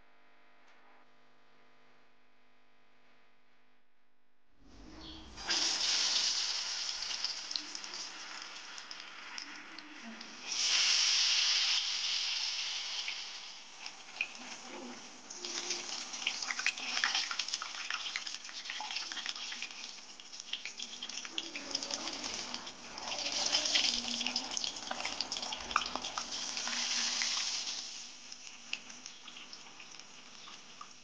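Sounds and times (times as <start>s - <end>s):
hot oil sizzling and crackling: 5.3s - 31.0s.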